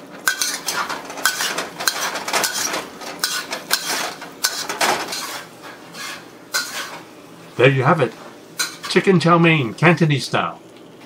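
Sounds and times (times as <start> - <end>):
ladle and spatula scraping wok: 0.2 - 7.1, 8.1 - 9.0.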